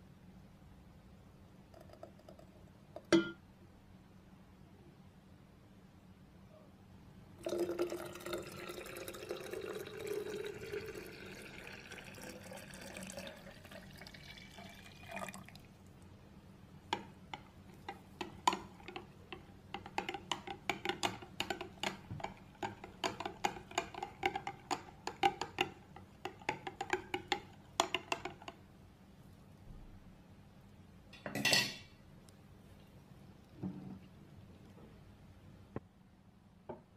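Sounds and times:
spoon clinking against glass: 0:03.1 - 0:03.4
liquid pouring into glass pitcher: 0:07.4 - 0:16.0.

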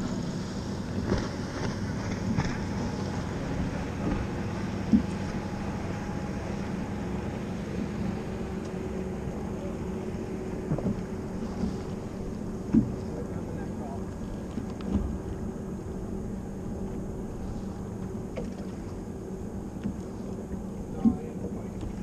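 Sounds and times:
boat motor hum: 0:00.0 - 0:22.0
water noise: 0:00.0 - 0:22.0
wind: 0:00.0 - 0:22.0
knocks on boat deck: 0:10.6 - 0:11.0, 0:12.7 - 0:13.0.

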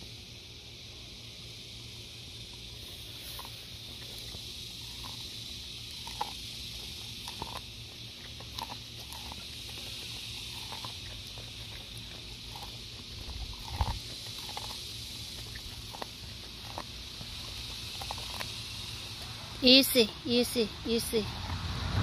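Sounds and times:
dog crunching corn kernels: 0:02.0 - 0:22.0.

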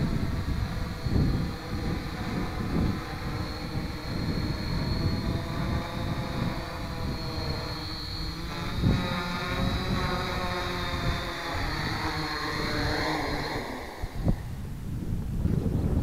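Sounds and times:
drone propellers whirring: 0:00.0 - 0:15.2
wind rumble on microphone: 0:00.0 - 0:16.0.

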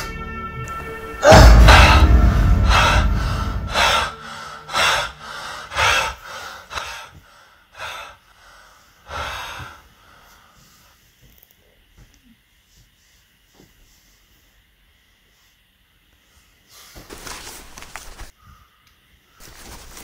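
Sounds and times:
deep low rumbling hit: 0:01.2 - 0:05.0
man gasping and breathing hard: 0:01.2 - 0:10.6.

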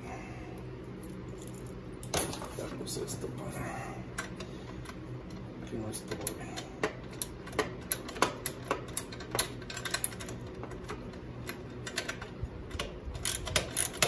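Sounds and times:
hand ratchet clicking: 0:06.2 - 0:14.0.

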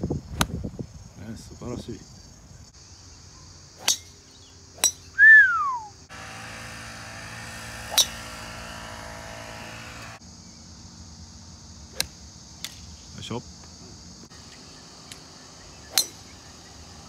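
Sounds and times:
insect hum: 0:00.0 - 0:17.0
golf clubs striking balls: 0:03.8 - 0:05.2, 0:06.2 - 0:10.2, 0:14.3 - 0:17.0
whistle sliding down in pitch: 0:05.2 - 0:05.9.

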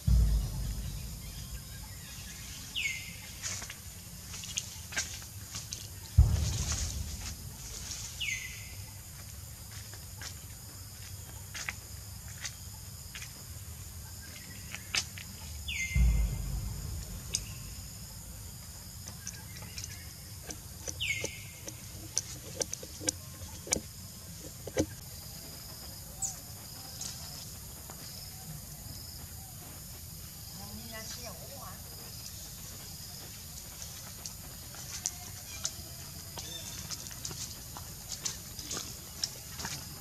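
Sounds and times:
low rumbling thumps: 0:00.0 - 0:05.4, 0:06.0 - 0:09.6, 0:15.6 - 0:25.9
insect hum: 0:00.0 - 0:40.0.

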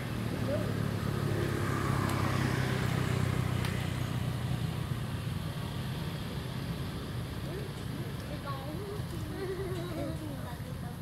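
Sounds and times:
vehicle engine hum passing: 0:00.0 - 0:11.0.

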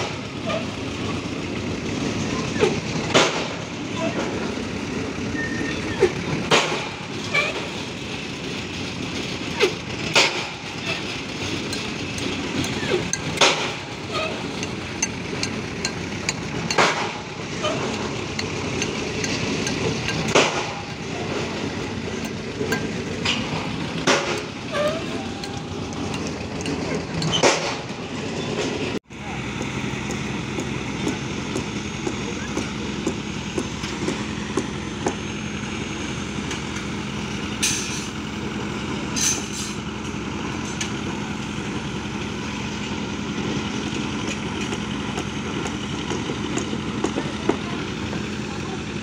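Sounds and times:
heavy diesel engine running: 0:00.0 - 0:49.0
sharp metallic knocks: 0:10.1 - 0:28.0.

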